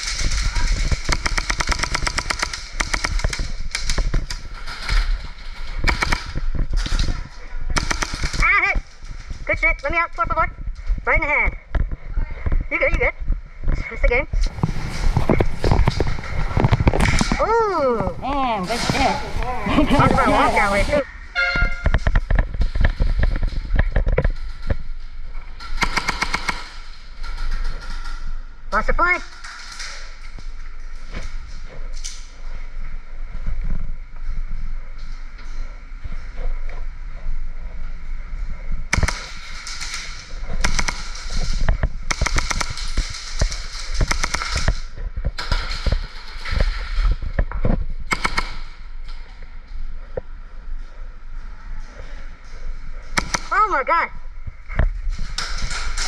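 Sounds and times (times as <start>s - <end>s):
airsoft gunshots: 0.0s - 5.0s, 5.8s - 6.9s, 7.7s - 8.8s, 25.7s - 26.9s, 38.9s - 46.4s, 48.1s - 48.8s, 53.1s - 53.8s.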